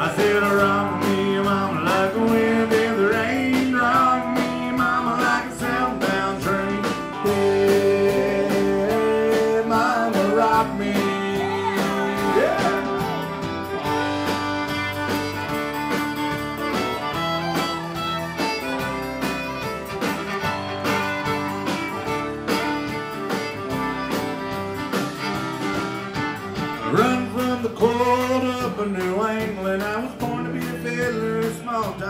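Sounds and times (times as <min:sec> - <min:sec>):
fiddle: 0:00.0 - 0:32.0
steady drum beat: 0:00.0 - 0:32.0
strummed acoustic guitar: 0:00.0 - 0:32.0.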